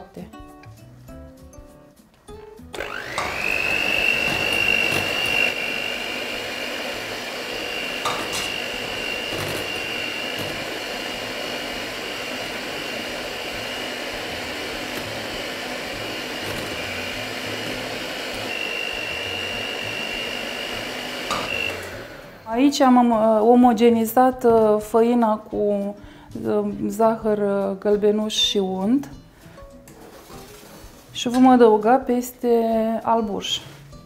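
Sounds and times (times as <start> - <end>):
electric mixer whine: 2.7 - 22.7.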